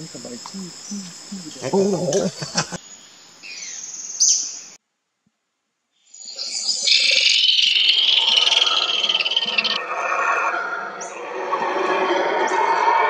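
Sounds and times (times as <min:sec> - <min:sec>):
low voices talking: 0:00.0 - 0:02.8
insects buzzing: 0:00.0 - 0:04.8, 0:06.1 - 0:09.8
bird whistled calls: 0:03.5 - 0:04.6, 0:06.1 - 0:09.8.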